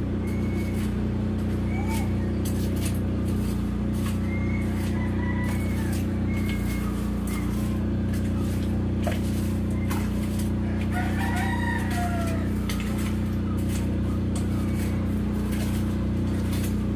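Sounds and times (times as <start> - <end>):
low drone of vehicle engines: 0.0 - 16.9
rooster crowing: 4.0 - 8.6, 9.3 - 16.6.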